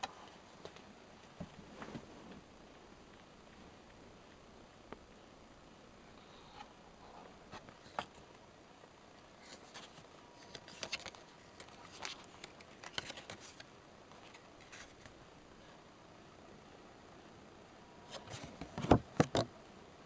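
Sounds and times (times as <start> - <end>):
paper pages rustling: 9.4 - 15.2.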